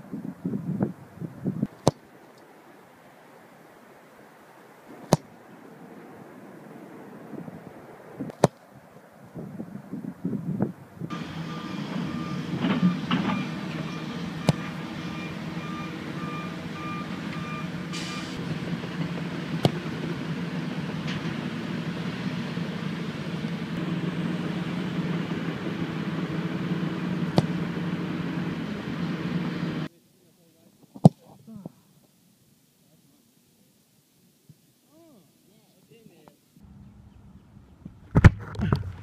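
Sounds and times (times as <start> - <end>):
reversing alarm beeping: 11.1 - 18.4
truck engine running: 11.1 - 29.9
football being kicked: 19.6 - 19.8, 27.3 - 27.6.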